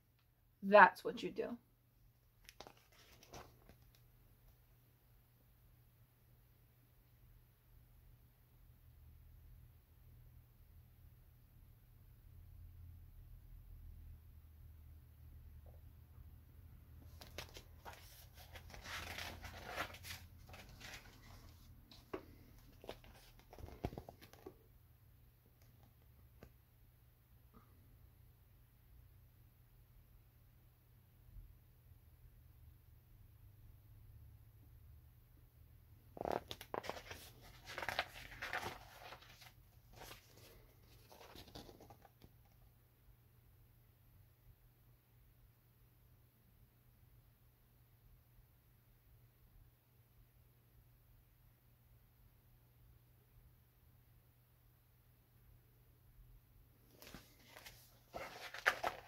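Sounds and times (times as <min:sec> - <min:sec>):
book pages rustling: 0:02.4 - 0:04.0, 0:17.0 - 0:24.6, 0:36.2 - 0:42.6, 0:56.8 - 0:59.0.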